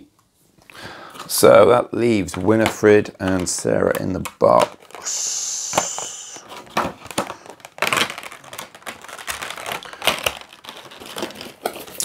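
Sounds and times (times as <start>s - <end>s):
plastic insert crinkling: 1.1s - 5.1s, 5.7s - 12.0s
cardboard rustling: 4.5s - 12.0s
brief steady hiss: 5.0s - 6.4s.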